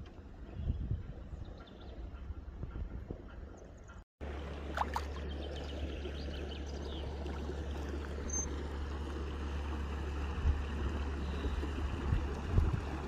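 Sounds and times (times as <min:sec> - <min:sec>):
boat engine rumble: 0:00.0 - 0:13.0
water wash from boat: 0:04.2 - 0:13.0
bird chirps: 0:08.2 - 0:08.5.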